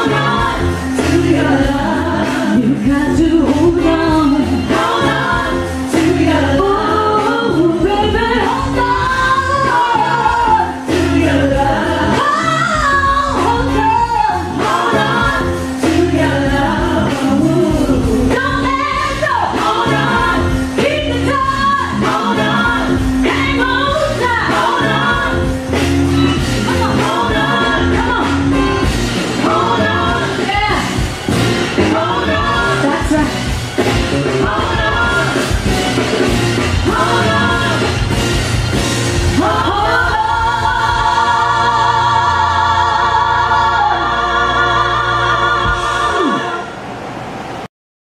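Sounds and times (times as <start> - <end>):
woman singing: 0.0 - 25.5, 26.6 - 28.5.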